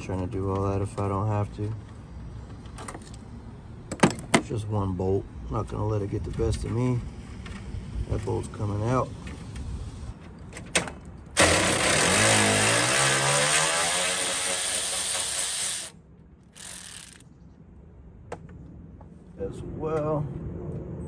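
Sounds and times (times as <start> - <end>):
power tool hissing: 11.4 - 16.0.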